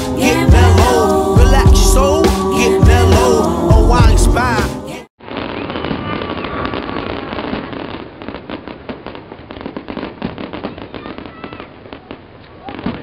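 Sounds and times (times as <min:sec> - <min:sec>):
fireworks crackling and popping: 0:05.2 - 0:13.0.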